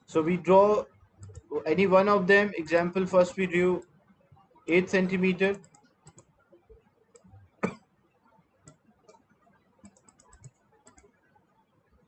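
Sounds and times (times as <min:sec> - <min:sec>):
computer mouse clicks: 0:01.2 - 0:01.5, 0:05.5 - 0:07.4, 0:08.6 - 0:11.6.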